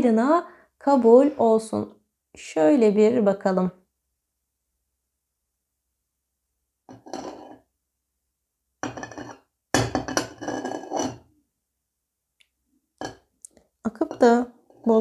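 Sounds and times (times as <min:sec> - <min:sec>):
cup scraping and clinking on saucer: 0:06.9 - 0:07.7, 0:08.8 - 0:11.3, 0:13.9 - 0:15.0.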